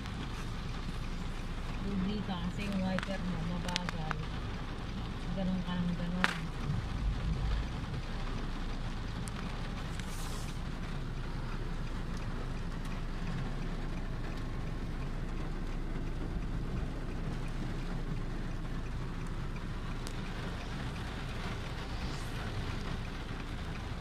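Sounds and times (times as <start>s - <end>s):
car engine and tyre rumble: 0.0s - 24.0s
heavy rain on a car: 0.0s - 24.0s.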